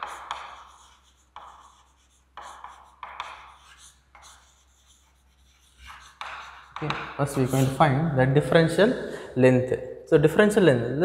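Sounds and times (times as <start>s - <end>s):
chalk scratching on chalkboard: 0.0s - 7.8s.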